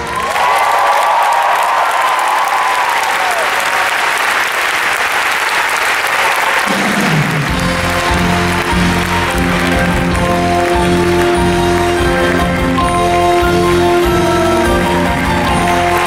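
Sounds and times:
audience applauding: 0:00.0 - 0:16.0
held musical note: 0:07.5 - 0:16.0.

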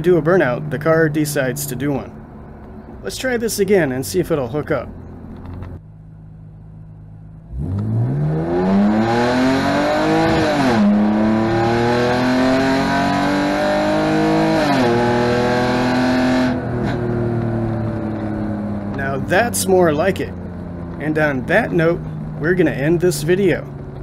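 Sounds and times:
car engine accelerating: 0:00.0 - 0:24.0.

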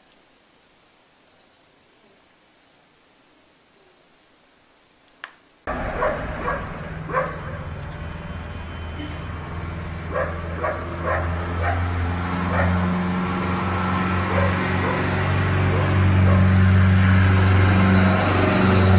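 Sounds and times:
dog barking: 0:05.8 - 0:07.7, 0:10.1 - 0:12.8, 0:14.3 - 0:16.6.

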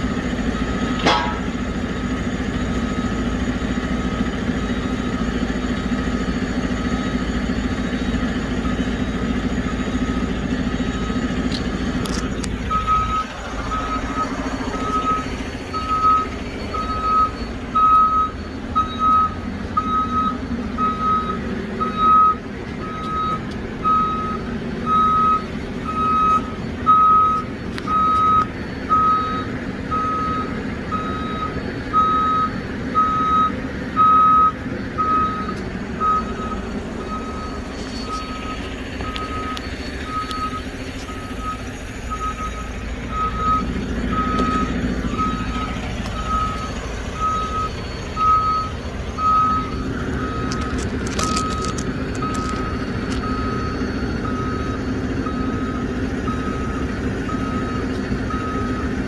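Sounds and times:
reversing alarm beeps: 0:00.0 - 0:59.0
truck engine under load: 0:00.0 - 0:59.0.

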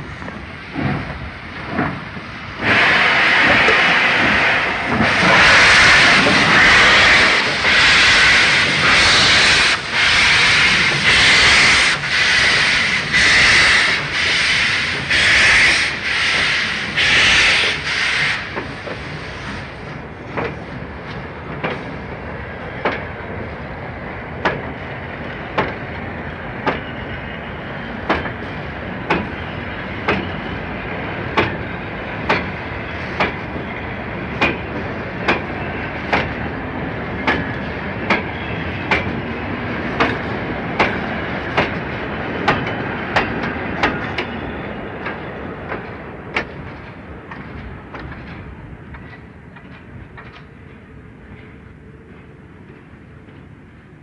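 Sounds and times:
train rolling rumble: 0:00.0 - 0:54.0
steam locomotive exhaust chuffs: 0:00.7 - 0:20.6.

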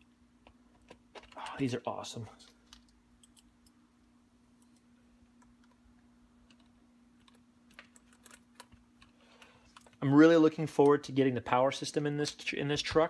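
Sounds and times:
faint steady hum: 0:00.0 - 0:13.0
small parts being handled: 0:00.4 - 0:01.8, 0:02.4 - 0:03.8, 0:04.5 - 0:10.1.

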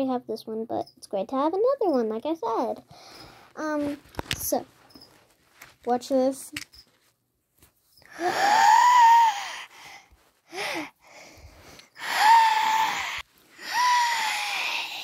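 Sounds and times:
high breathy vocal squeals: 0:08.0 - 0:15.0.

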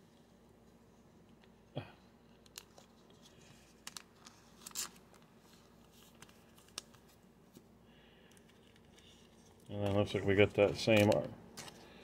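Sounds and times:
plastic sleeve crinkling: 0:02.4 - 0:07.2.

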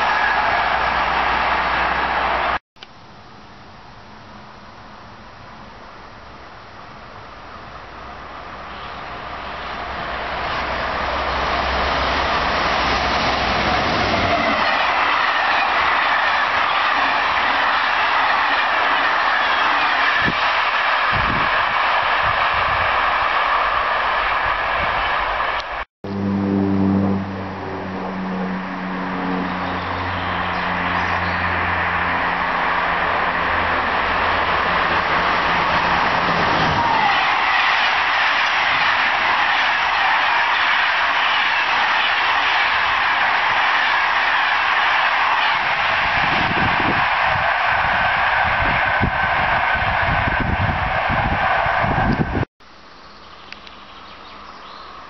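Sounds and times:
train wheels rushing on rail: 0:07.4 - 0:25.9, 0:28.2 - 0:52.5
low steady hum: 0:26.1 - 0:30.8.

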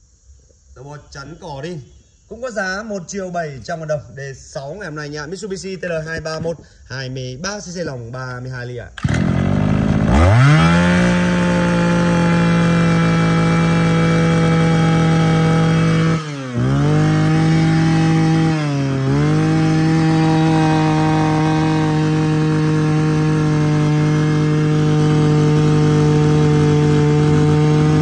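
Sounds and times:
brush cutter engine revving: 0:08.9 - 0:28.0.

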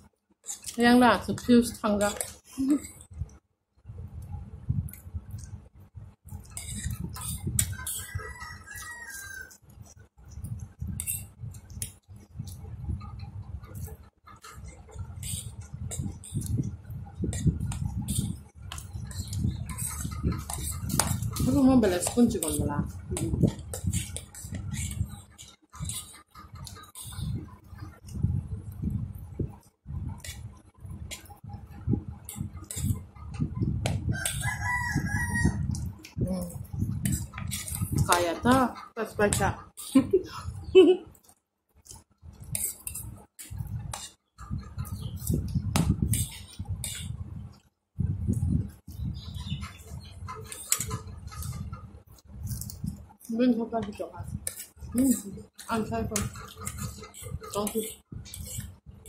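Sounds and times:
rooster crowing: 0:07.9 - 0:09.6, 0:34.2 - 0:35.7
noodles slurped and chewed: 0:41.1 - 0:44.2
plastic forks scraping plates: 0:49.6 - 0:51.9, 0:54.5 - 0:58.7.

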